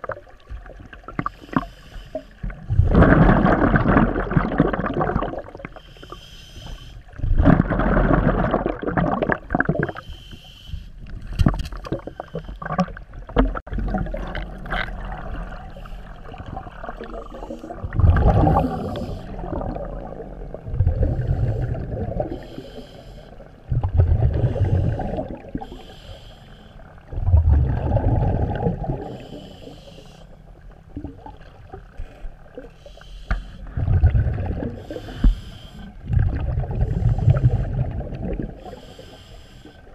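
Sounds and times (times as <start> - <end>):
regulator hissing inhale: 1.2 - 2.4, 5.8 - 7.2, 9.9 - 11.0, 17.2 - 17.8, 18.6 - 19.4, 21.2 - 23.5, 24.5 - 27.0, 29.1 - 30.6, 32.0 - 33.7, 34.8 - 36.0, 38.6 - 39.9
exhaust bubbles rumbling: 2.5 - 5.7, 7.2 - 10.0, 12.6 - 22.3, 23.7 - 25.6, 27.1 - 29.2, 33.7 - 34.9, 36.0 - 38.6.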